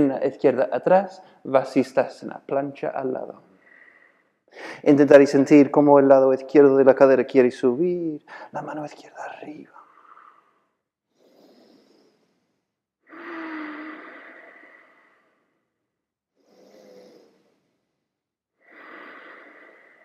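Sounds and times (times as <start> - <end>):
person breathing deeply: 3.5 - 4.9, 8.2 - 8.6, 9.7 - 20.0.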